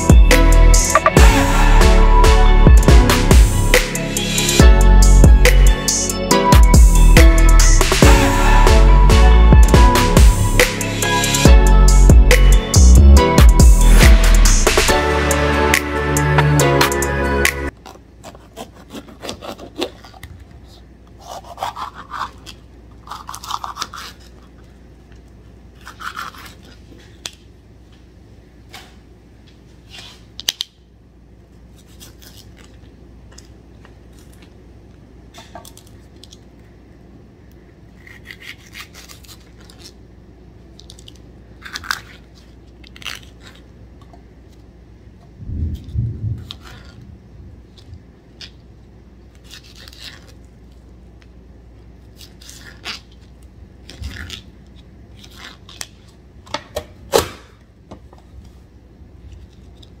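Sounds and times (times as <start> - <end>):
steady low hum: 0.0 - 18.2, 30.8 - 60.0
knife slicing peppers: 17.8 - 20.4, 21.1 - 24.6, 25.8 - 27.4, 38.0 - 40.0.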